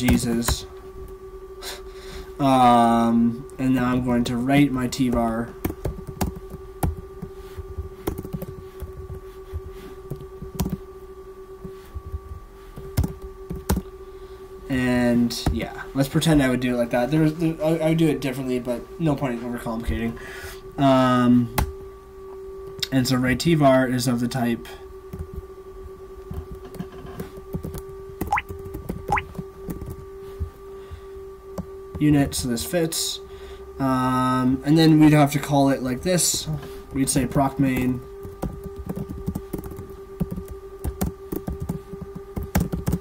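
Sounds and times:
steady hum: 0.0s - 43.0s
computer keyboard keystrokes: 8.0s - 9.1s, 10.1s - 10.8s, 12.8s - 13.8s, 37.7s - 43.0s.

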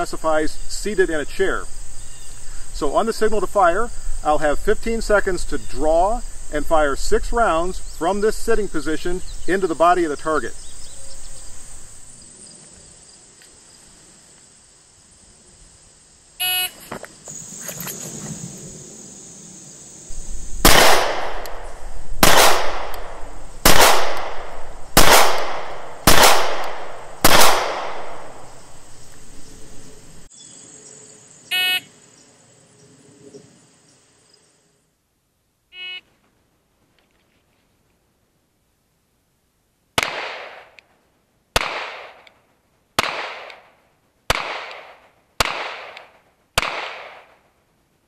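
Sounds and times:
insects droning: 0.0s - 36.1s
short electronic beeps: 16.4s - 16.9s, 31.5s - 31.8s, 35.8s - 36.0s
pistol shots: 20.6s - 28.5s, 40.0s - 40.8s, 41.6s - 42.3s, 43.0s - 43.7s, 44.3s - 47.5s.

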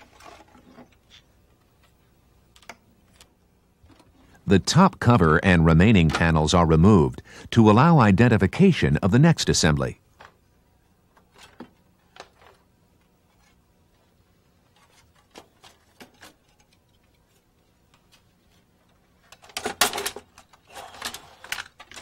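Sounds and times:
printer parts rattling clatter: 19.2s - 22.0s.

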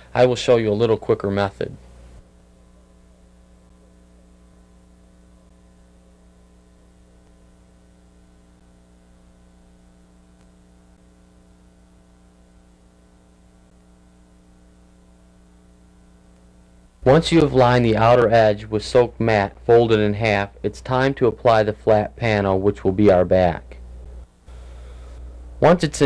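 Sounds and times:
faint hiss: 0.0s - 4.6s, 23.5s - 26.0s
electrical mains hum: 0.0s - 26.0s.

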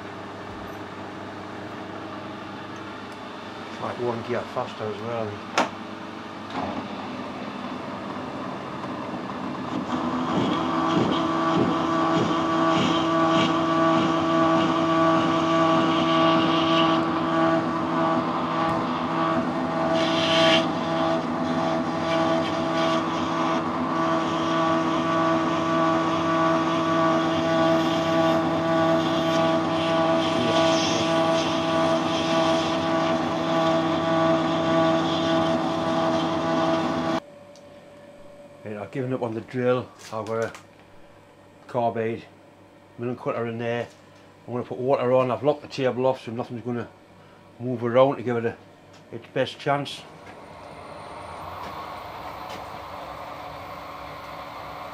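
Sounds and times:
gearbox whine: 6.5s - 39.8s, 49.7s - 54.9s
metal lathe running: 6.8s - 37.2s, 49.9s - 54.9s.

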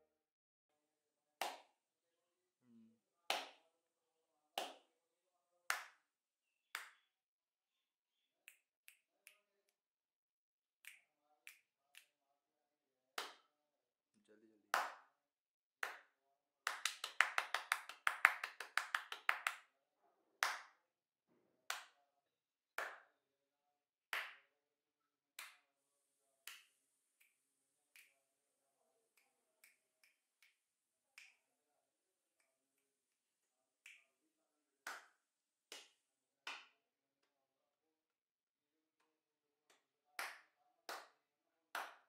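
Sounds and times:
hand claps: 1.4s - 1.8s, 3.3s - 3.7s, 4.6s - 4.9s, 5.7s - 7.2s, 8.4s - 9.8s, 10.8s - 12.2s, 13.2s - 13.5s, 14.7s - 15.2s, 15.8s - 19.7s, 20.4s - 20.8s, 21.7s - 22.0s, 22.8s - 23.2s, 24.1s - 24.5s, 25.4s - 25.7s, 26.4s - 28.3s, 29.1s - 31.5s, 33.8s - 34.1s, 34.8s - 37.3s, 39.7s - 42.0s.

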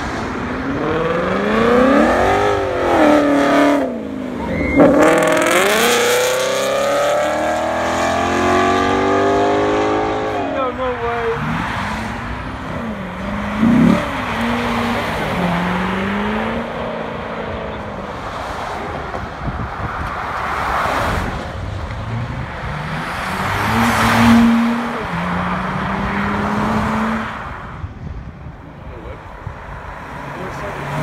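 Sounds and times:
road and tyre noise: 0.0s - 31.0s
sports car engine revving: 0.7s - 4.1s, 4.8s - 10.5s, 11.4s - 17.8s
sports car accelerating away: 0.7s - 10.4s.

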